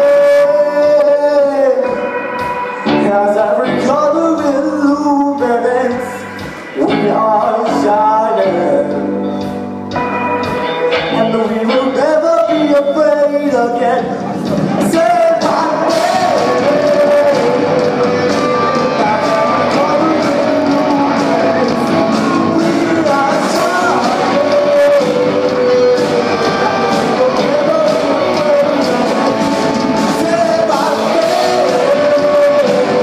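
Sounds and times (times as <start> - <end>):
bass guitar: 0.0 - 33.0
electric guitars: 0.0 - 33.0
drums with cymbals: 1.8 - 3.1, 5.4 - 8.0, 14.0 - 33.0
person singing long notes: 10.5 - 33.0.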